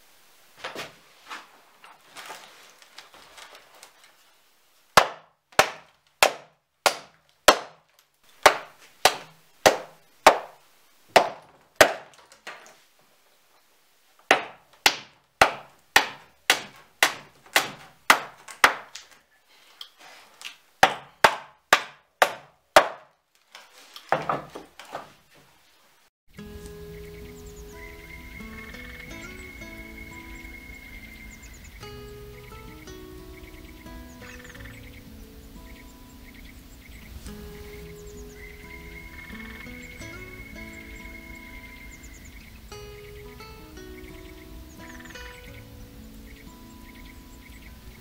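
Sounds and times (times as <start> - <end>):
hammer striking nails in wood: 5.0 - 7.8, 8.4 - 10.6, 11.2 - 12.7, 14.3 - 19.2, 20.8 - 23.1.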